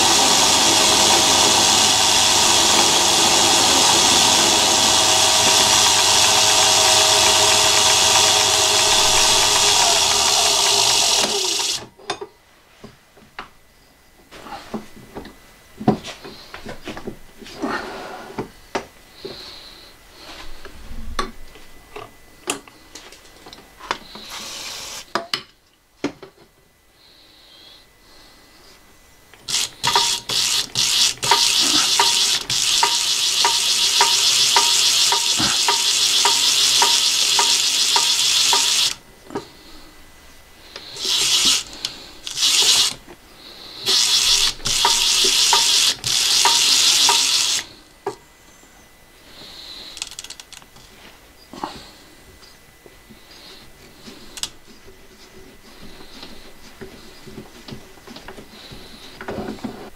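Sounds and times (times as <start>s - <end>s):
metal lathe cutting: 0.0s - 11.9s, 29.5s - 39.0s, 41.0s - 43.0s, 43.8s - 47.7s
clicks and knocks of handling tooling: 29.6s - 30.4s.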